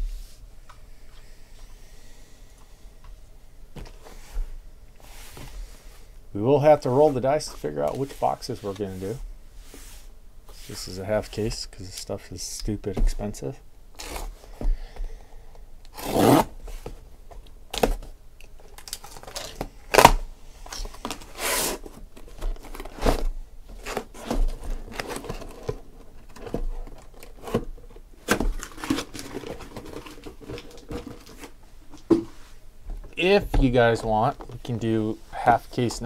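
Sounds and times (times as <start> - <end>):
packing tape ripping: 15.9 - 16.6, 18.7 - 20.2, 21.2 - 21.9
cardboard flaps scraping: 19.3 - 32.3.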